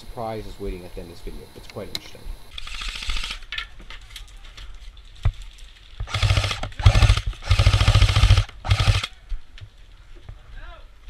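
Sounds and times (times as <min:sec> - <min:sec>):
airsoft gun full-auto bursts: 0:02.5 - 0:03.5, 0:06.0 - 0:09.2.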